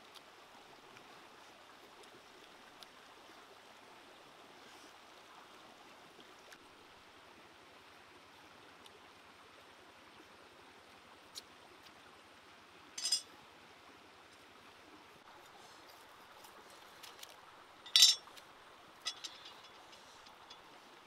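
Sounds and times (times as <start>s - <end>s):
stream running over rocks: 0.0s - 21.0s
metallic clink of machete: 13.0s - 13.2s, 17.9s - 18.3s, 19.1s - 20.0s.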